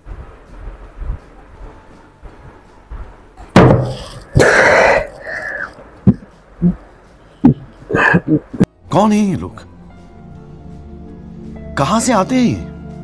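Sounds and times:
loud thump on table: 3.6 - 4.0.

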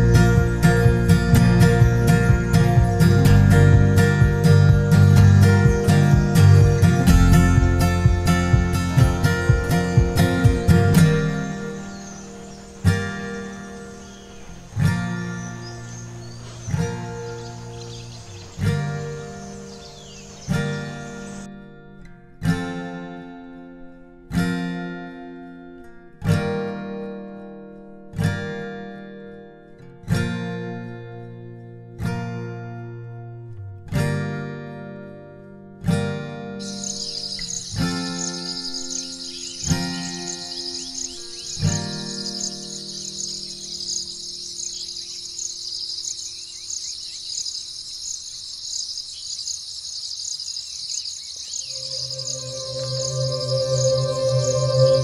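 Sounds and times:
acoustic guitar chords: 0.0 - 46.1, 51.7 - 55.0
insect chorus trilling: 9.6 - 21.5, 36.6 - 55.0
music chord: 51.7 - 55.0.

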